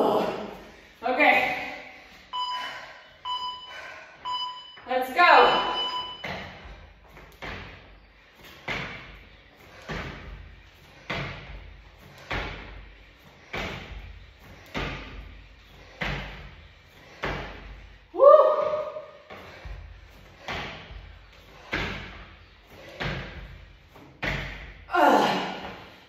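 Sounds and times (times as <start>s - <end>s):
workout thuds: 5.4s - 26.0s.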